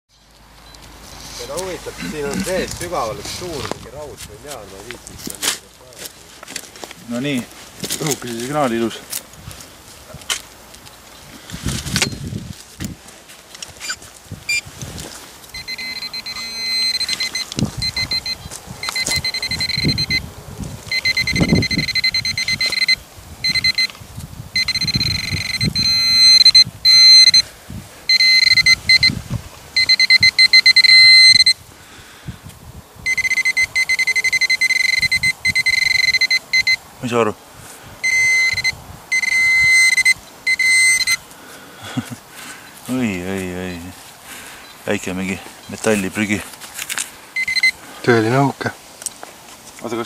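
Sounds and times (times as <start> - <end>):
soil scraping and crunching: 0.1 - 19.6, 42.0 - 47.3
pinpointer high alarm tone: 15.5 - 20.3, 20.9 - 24.0, 24.6 - 27.5, 28.1 - 29.2, 29.8 - 31.6, 33.0 - 36.8, 38.0 - 41.2, 47.4 - 47.8.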